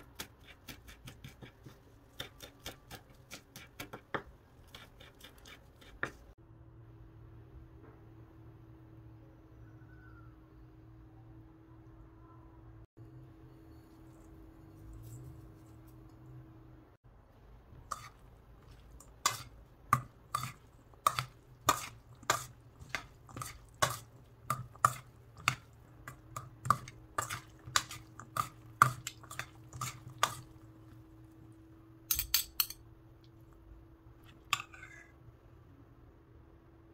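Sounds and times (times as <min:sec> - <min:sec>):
metal spoons clinking in steel bowl: 0:32.1 - 0:32.9.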